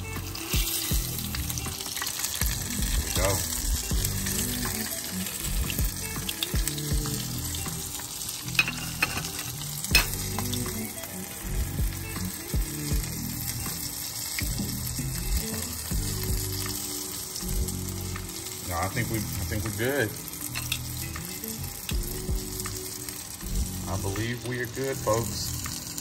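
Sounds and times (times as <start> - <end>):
fish frying in hot grease: 0.0 - 26.0.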